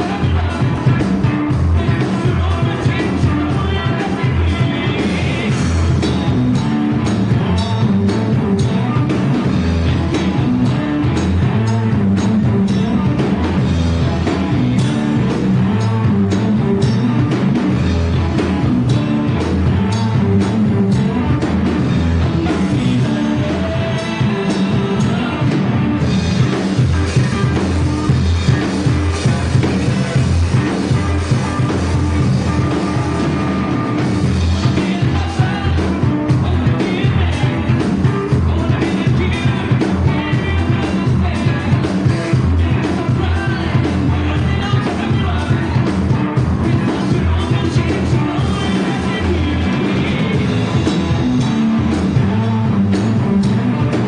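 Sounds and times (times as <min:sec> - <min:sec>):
bass guitar: 0:00.0 - 0:54.0
drum kit: 0:00.0 - 0:54.0
electric guitar: 0:00.0 - 0:54.0
man singing: 0:00.0 - 0:54.0.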